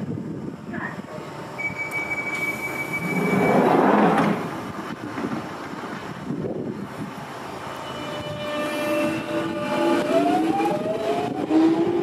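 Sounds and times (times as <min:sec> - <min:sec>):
high warning tone: 0:01.6 - 0:04.0
train doors sliding shut: 0:01.6 - 0:12.0.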